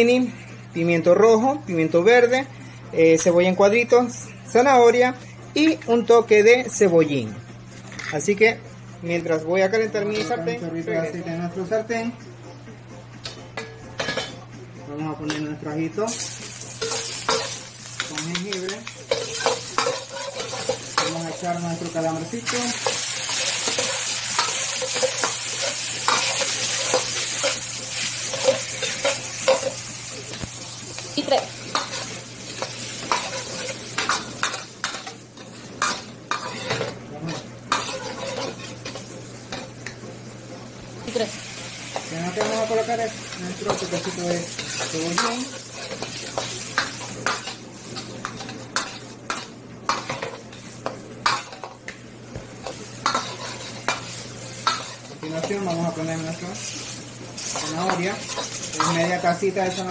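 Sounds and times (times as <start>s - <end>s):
spatula scraping and knocking wok: 16.1s - 39.8s, 41.9s - 59.9s
squid sizzling in a wok: 16.1s - 59.9s
metal spatula scraping frying pan: 19.1s - 21.3s, 35.8s - 39.0s, 52.6s - 55.1s.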